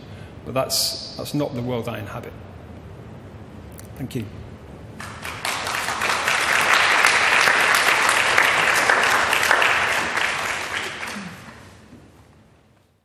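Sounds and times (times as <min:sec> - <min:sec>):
audience applauding: 0:05.0 - 0:11.9.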